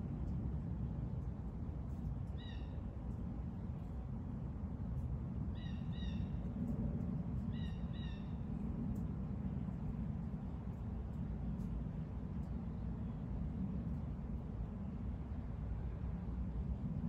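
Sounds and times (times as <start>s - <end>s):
steady low rumble: 0.0s - 17.0s.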